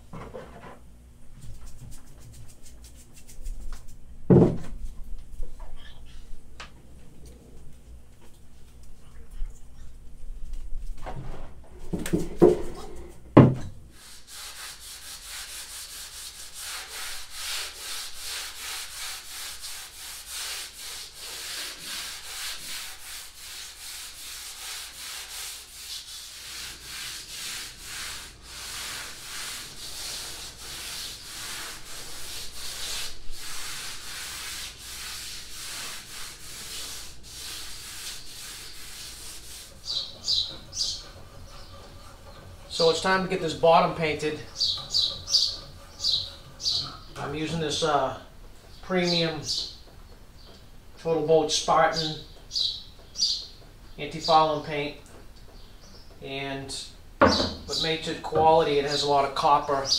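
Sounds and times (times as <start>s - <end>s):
hand sanding plywood: 1.4s - 4.0s, 13.9s - 47.9s
wooden hull knocks: 4.3s - 4.7s, 57.2s - 57.7s.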